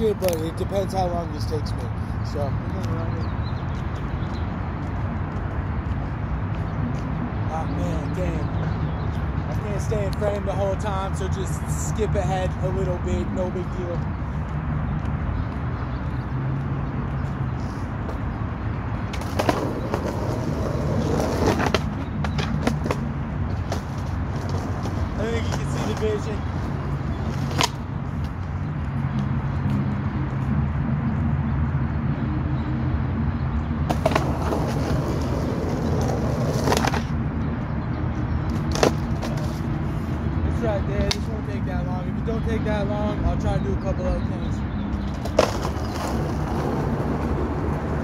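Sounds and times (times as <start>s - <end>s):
skateboard wheels rumbling on asphalt: 0.0s - 32.1s, 33.2s - 48.0s
skateboard clacking: 19.1s - 26.2s, 27.3s - 27.8s, 33.9s - 37.1s, 45.1s - 48.0s.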